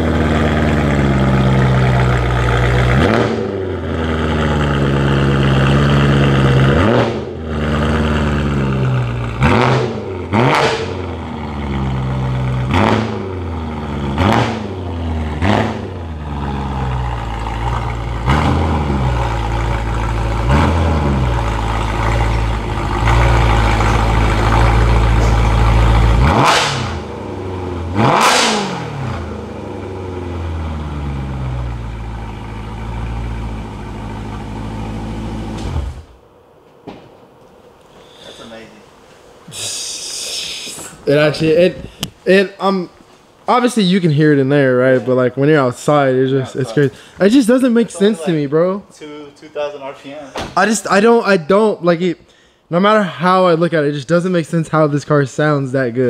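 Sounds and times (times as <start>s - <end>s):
car engine idling with throttle blips: 0.0s - 36.2s.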